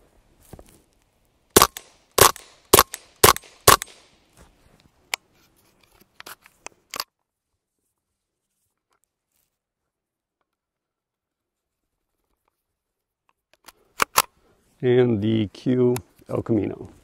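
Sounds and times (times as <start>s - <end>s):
suppressed gunshots: 1.6s - 4.1s.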